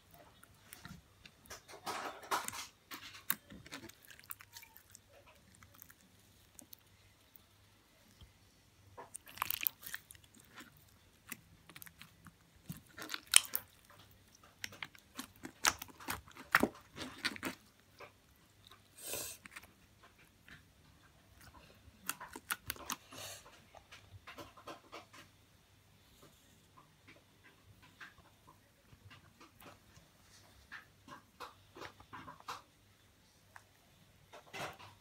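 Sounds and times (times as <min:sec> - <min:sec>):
slime wet pops and crackles: 0:09.0 - 0:17.6.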